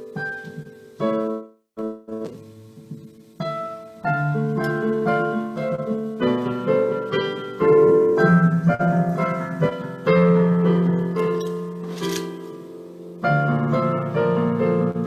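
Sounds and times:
solo piano chords: 0.0 - 15.0
brief rustle: 11.4 - 12.4.

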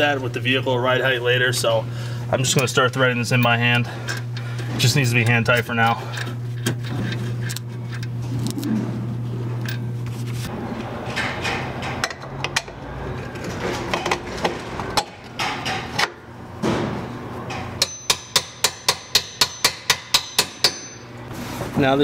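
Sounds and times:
hammer striking metal bolt: 17.5 - 21.0.

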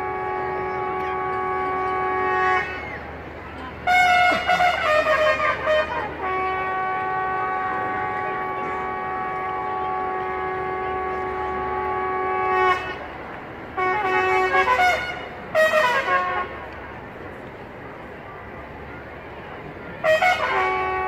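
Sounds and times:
bugle call: 3.8 - 13.0, 20.0 - 21.0.

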